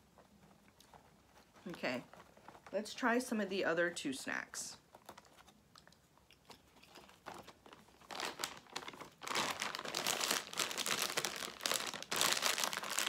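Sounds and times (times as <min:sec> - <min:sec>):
plastic snack bag crinkling: 0:04.8 - 0:13.0.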